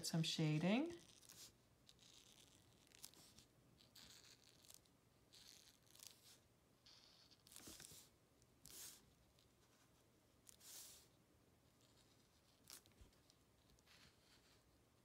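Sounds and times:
marker scratching on paper: 1.0 - 9.0.

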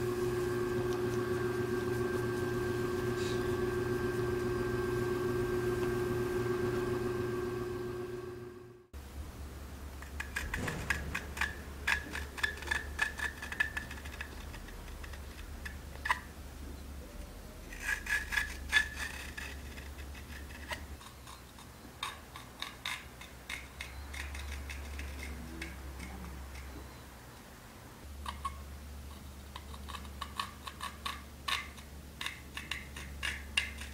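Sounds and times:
metal tool scraping porcelain: 10.2 - 16.3, 17.7 - 26.8.

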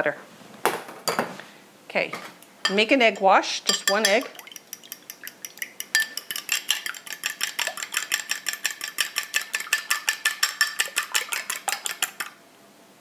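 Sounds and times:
fork beating egg in glass bowl: 3.7 - 12.4.

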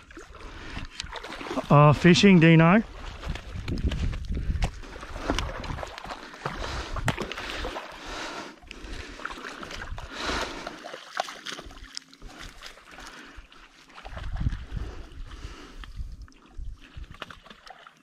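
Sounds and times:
water splashing: 0.0 - 18.0
fish slapping on wet sand: 3.0 - 7.9.

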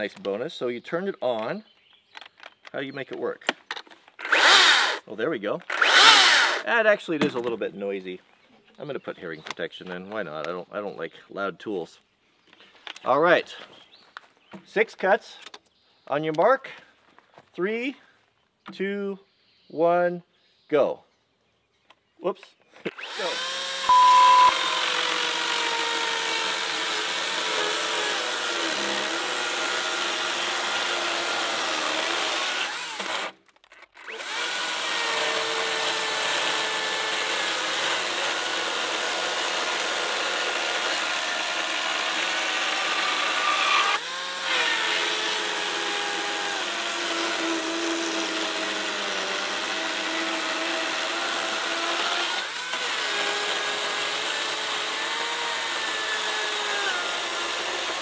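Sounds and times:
electric chainsaw cutting log: 4.2 - 5.0, 5.7 - 6.7, 22.9 - 33.4, 34.0 - 58.0.

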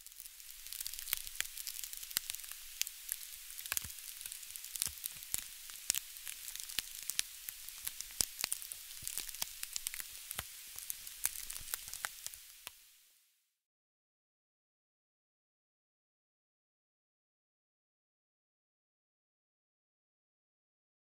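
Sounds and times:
campfire crackling: 0.0 - 13.0
steady high hiss: 0.0 - 13.4.

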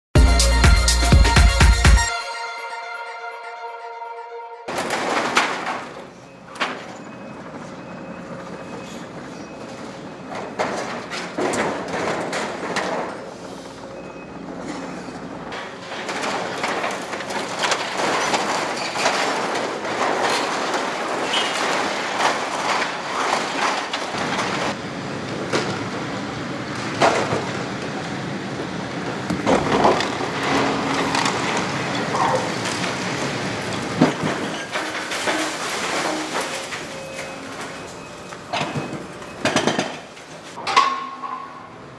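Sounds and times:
sharp crashes and cracks: 4.7 - 6.8, 15.5 - 24.8, 29.4 - 37.9
debris clattering: 4.7 - 7.3, 10.2 - 13.3, 15.5 - 24.8, 29.3 - 41.8
metal cladding crumpling and scraping: 4.7 - 7.7, 9.8 - 13.5, 14.7 - 24.8, 29.4 - 40.6.

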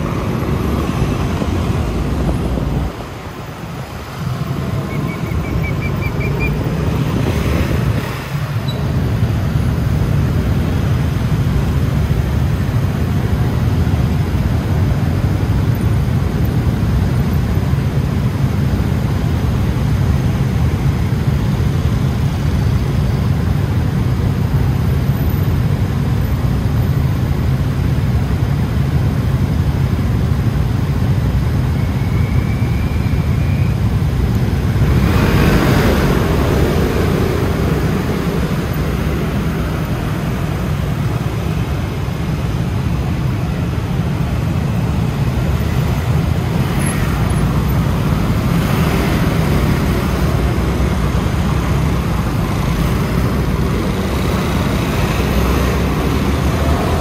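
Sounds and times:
scooter engine and road rumble: 0.0 - 57.0
vehicle passing: 34.6 - 42.3.

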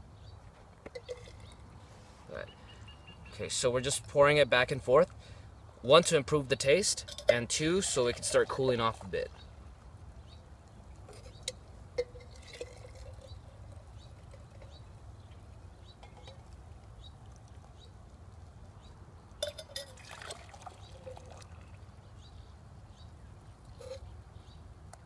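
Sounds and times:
water trickling between metal cups: 0.7 - 2.0, 6.0 - 10.0, 10.6 - 22.2.

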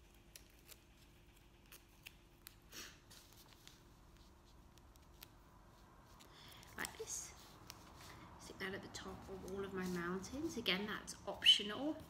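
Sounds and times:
masking tape tearing: 0.0 - 2.7
light ticks of tape handling: 6.1 - 8.1.

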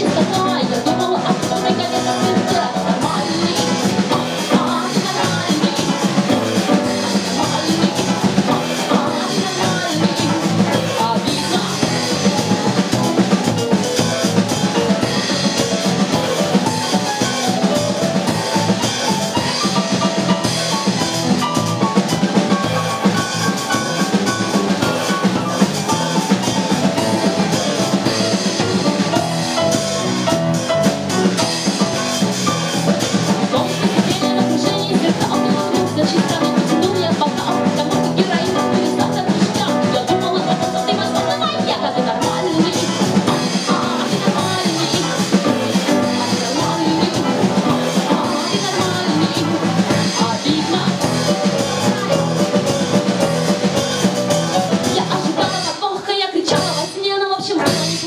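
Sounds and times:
live band playing: 0.0 - 58.0.

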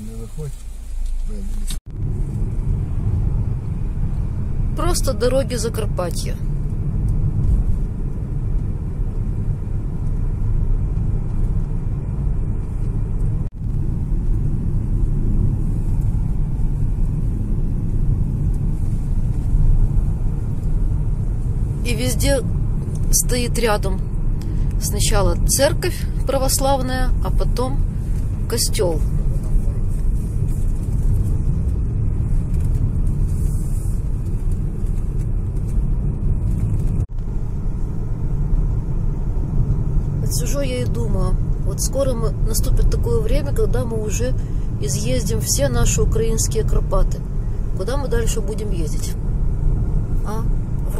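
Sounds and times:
road and engine rumble in car: 0.0 - 50.9.

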